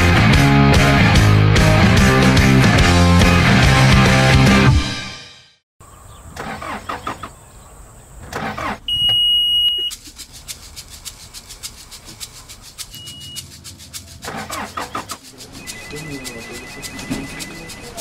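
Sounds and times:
shrill beep: 8.9 - 9.9
vehicle engine running: 9.8 - 18.0
rapid even clatter: 9.9 - 18.0.

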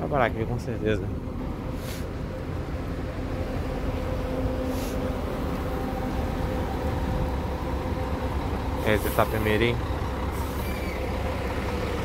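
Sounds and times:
bus engine running: 0.0 - 12.0
short air hiss: 1.8 - 2.1, 4.7 - 5.0.

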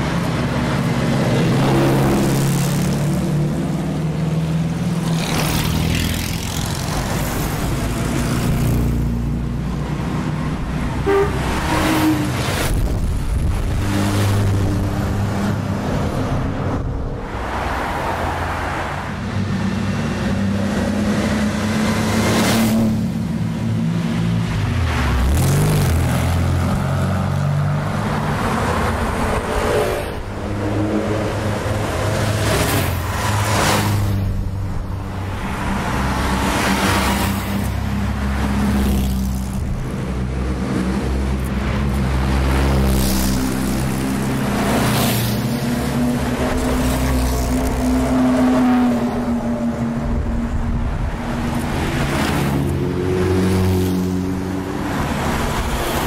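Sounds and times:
sports cars revving past: 17.4 - 34.5, 35.5 - 56.0.

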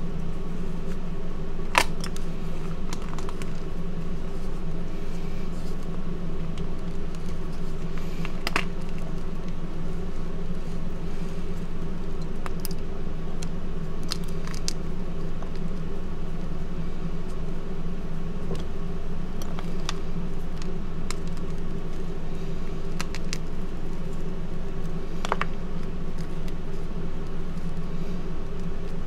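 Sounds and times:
steady low hum: 0.0 - 29.0
hands crumbling chalk blocks: 1.7 - 3.7, 5.0 - 10.9, 11.5 - 15.8, 19.4 - 22.2, 22.8 - 29.0.

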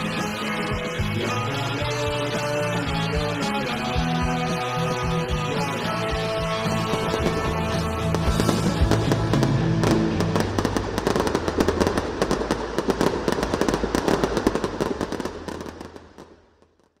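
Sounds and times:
music with held notes: 0.0 - 11.3
fireworks crackling and popping: 0.0 - 17.0.

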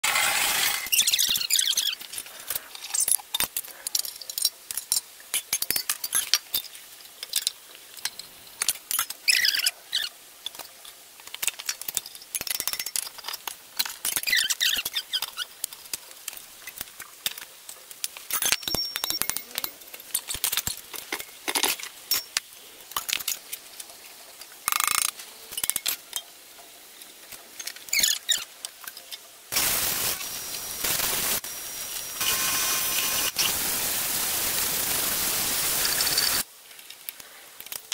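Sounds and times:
metal tools clinking: 18.3 - 22.4.

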